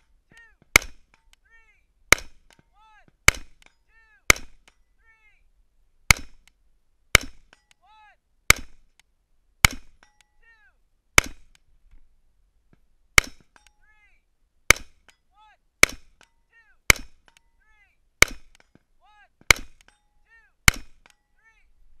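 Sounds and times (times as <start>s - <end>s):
rifle shots: 15.8s - 16.2s, 16.9s - 17.4s, 18.2s - 18.7s, 19.5s - 19.9s.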